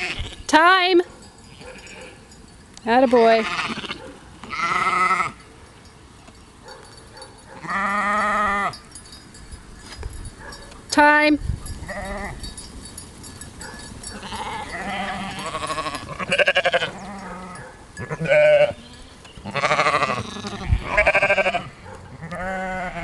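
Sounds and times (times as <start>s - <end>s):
sheep bleating: 0.0s - 0.4s, 3.1s - 5.4s, 7.6s - 8.8s, 14.2s - 23.0s.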